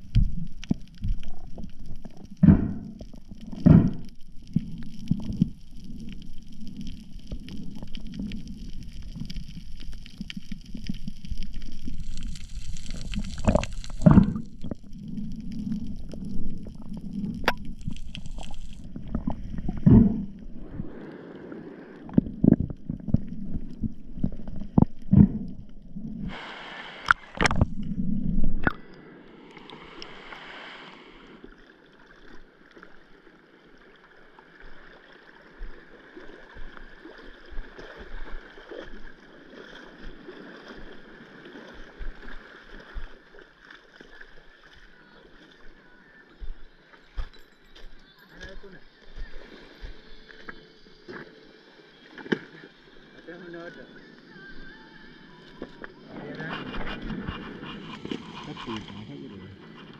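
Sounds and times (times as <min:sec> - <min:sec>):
muffled underwater rumble: 0:00.0 - 0:43.4, 0:47.8 - 0:59.9
water hiss: 0:10.4 - 0:14.6, 0:20.5 - 0:22.4, 0:26.2 - 0:27.8, 0:28.6 - 0:31.6.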